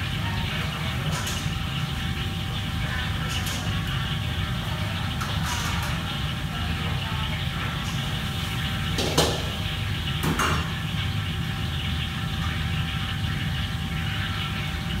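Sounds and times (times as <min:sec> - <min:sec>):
low mechanical hum: 0:00.0 - 0:15.0
kitchen clatters: 0:00.7 - 0:01.9, 0:03.0 - 0:04.3, 0:04.9 - 0:06.4, 0:07.7 - 0:09.6, 0:10.2 - 0:10.8.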